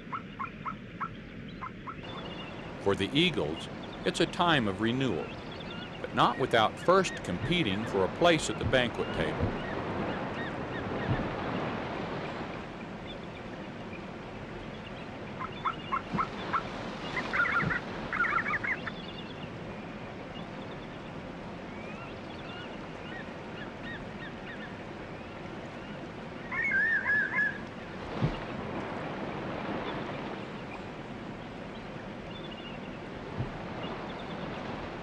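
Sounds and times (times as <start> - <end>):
eagles calling and chittering: 0.0 - 11.1, 15.4 - 19.0, 26.5 - 27.6
steady rushing noise: 2.0 - 14.6.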